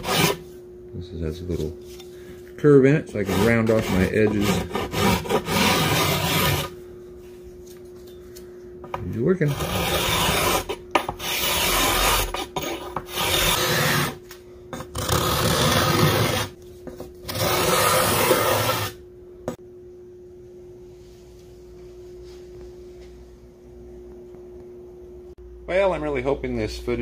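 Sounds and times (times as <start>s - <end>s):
scraper scraping wood: 0.0s - 0.4s, 3.2s - 6.8s, 9.4s - 14.2s, 14.8s - 16.6s, 17.2s - 19.0s
faint steady hum: 0.0s - 27.0s.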